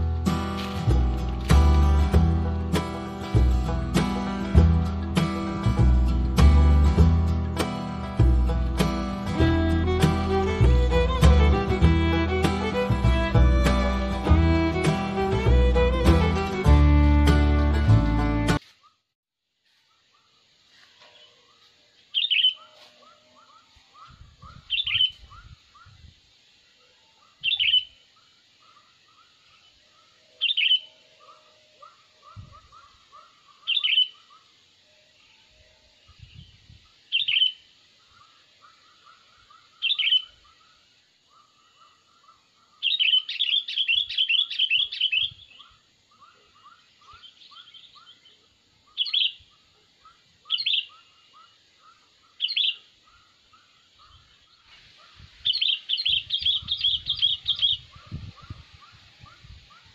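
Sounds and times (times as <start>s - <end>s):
faint bird chirping: 19.7s - 59.9s
bulbuls calling and chattering: 20.0s - 26.2s, 26.8s - 59.9s.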